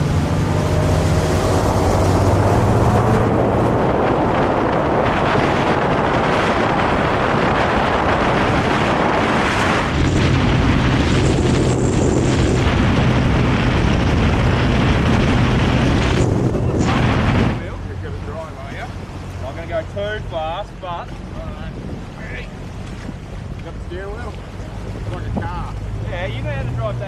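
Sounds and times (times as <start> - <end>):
speedboat motor drone: 0.0 - 27.0
wind buffeting microphone: 0.0 - 27.0.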